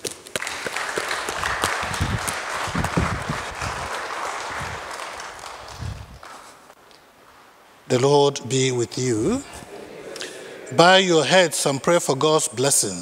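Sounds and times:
congregation applauding: 0.0 - 6.7.

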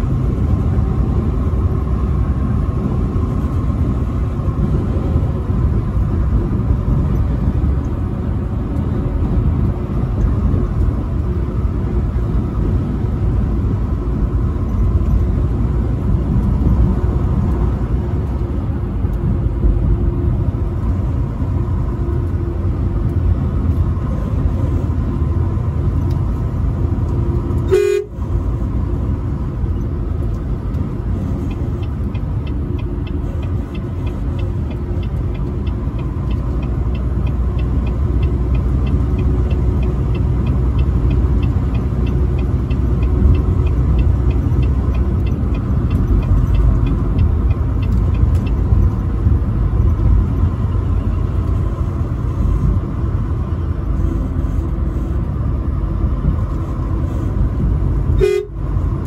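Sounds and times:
truck cab low rumble: 0.0 - 59.0
truck horn tone: 27.7 - 28.3, 58.2 - 58.7
light rapid ticking: 29.8 - 50.2.

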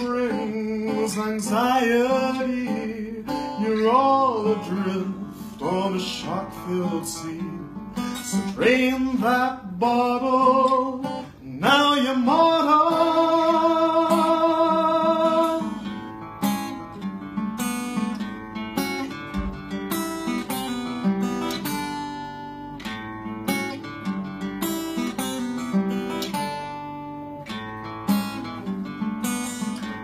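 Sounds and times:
man singing with vibrato: 0.0 - 16.0
acoustic guitar: 0.0 - 30.0.

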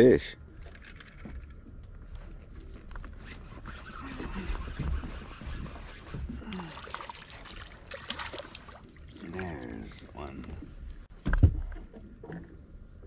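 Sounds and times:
water lapping against hull: 3.2 - 13.0.

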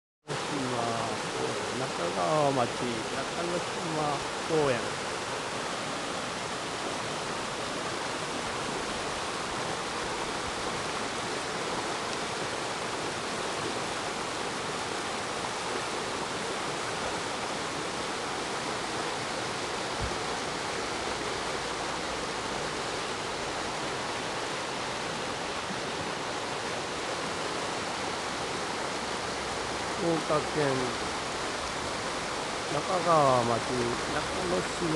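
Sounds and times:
river rushing over boulders: 0.3 - 34.9.

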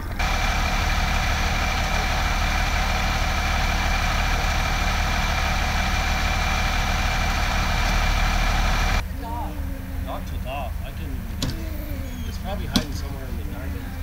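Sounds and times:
high-pitched whine: 0.0 - 9.0
diesel engine idling: 0.0 - 14.0.

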